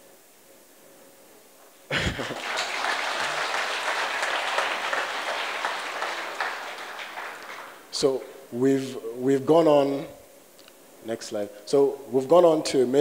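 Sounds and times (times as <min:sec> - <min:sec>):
audience applause: 0:01.9 - 0:08.0.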